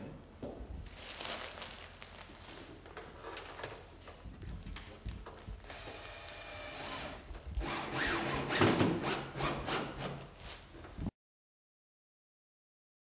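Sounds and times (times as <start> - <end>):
drill motor whirring: 5.6 - 10.2
rapid drill clicks: 5.7 - 10.1.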